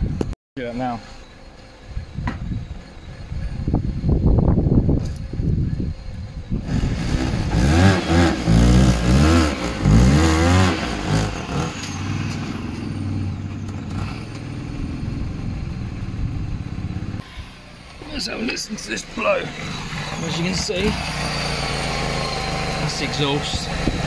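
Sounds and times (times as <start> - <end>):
exhaust blowing: 0.0 - 24.0
car engine revving and idling: 6.3 - 24.0.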